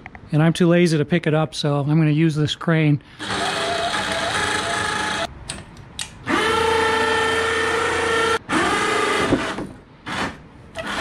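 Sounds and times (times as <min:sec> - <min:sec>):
electric winch motor whining: 0:03.2 - 0:05.3, 0:06.2 - 0:11.0.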